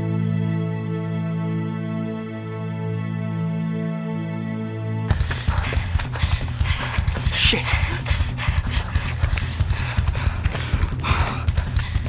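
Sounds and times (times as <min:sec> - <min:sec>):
running footsteps on dirt path: 0:05.1 - 0:12.0.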